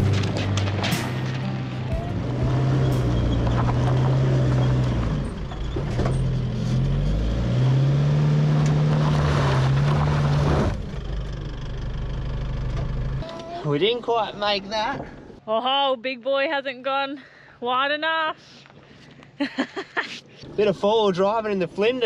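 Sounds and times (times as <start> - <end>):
engine working under load: 0.0 - 13.2
tyres crunching over gravel: 2.2 - 6.9.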